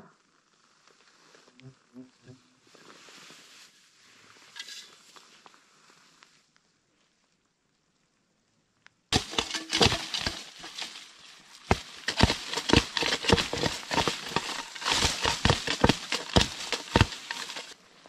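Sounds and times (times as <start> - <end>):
leaves rustling: 2.6 - 6.5, 9.1 - 18.0
branches cracking and snapping: 9.2 - 17.8.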